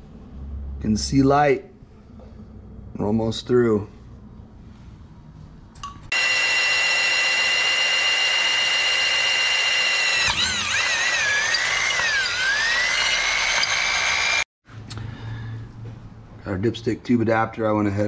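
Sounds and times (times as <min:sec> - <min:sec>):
electric drill whining: 0:06.1 - 0:14.5.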